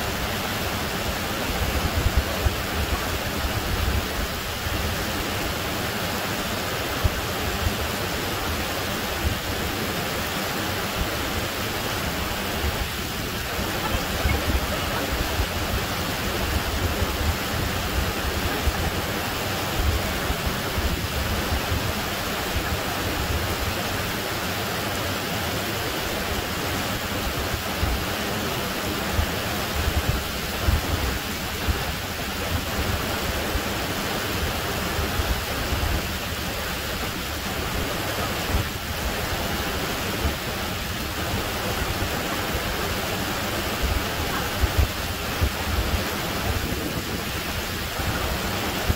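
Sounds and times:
waterfall rushing over rocks: 0.0 - 48.9.

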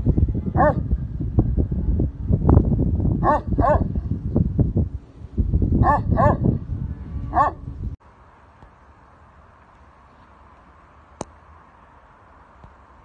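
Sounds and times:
loud low rumble: 0.0 - 8.0
dog barking: 0.6 - 0.8, 3.2 - 3.9, 5.8 - 6.5, 7.3 - 7.6.

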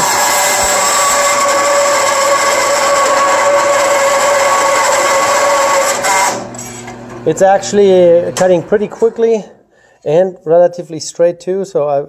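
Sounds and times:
bandsaw cutting steel: 0.0 - 7.4.

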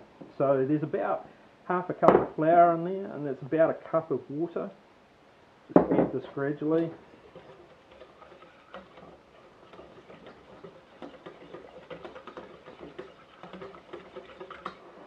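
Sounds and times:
whisk scraping metal saucepan: 6.3 - 15.0.

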